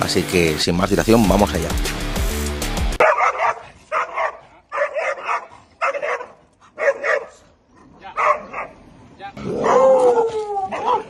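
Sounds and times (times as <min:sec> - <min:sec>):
dog barking: 0:03.0 - 0:07.5, 0:08.2 - 0:08.8, 0:09.6 - 0:11.0.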